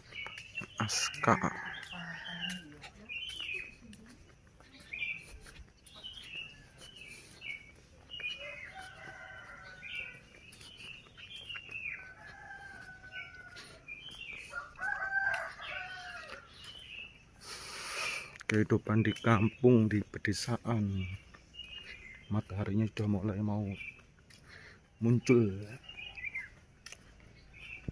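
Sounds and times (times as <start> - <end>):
small birds chirping: 0.0 - 27.9
roosters crowing: 0.8 - 2.8, 8.0 - 16.7.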